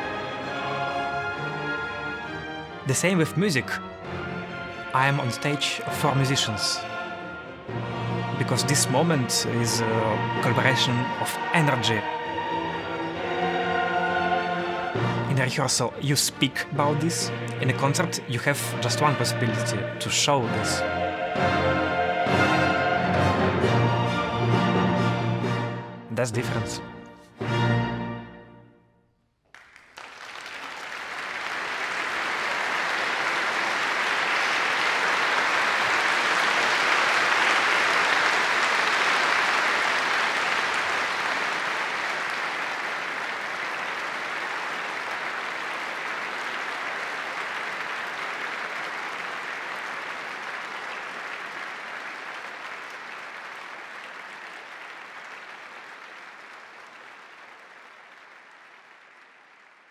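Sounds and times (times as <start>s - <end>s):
audience applauding: 5.0s - 7.3s, 8.4s - 15.7s, 16.5s - 23.1s, 29.4s - 59.9s.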